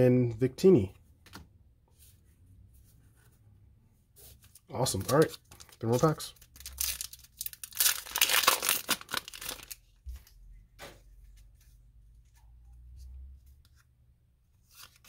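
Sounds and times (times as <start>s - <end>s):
cards rustling and tapping: 4.8s - 7.1s
foil wrapper crinkling: 5.0s - 9.8s.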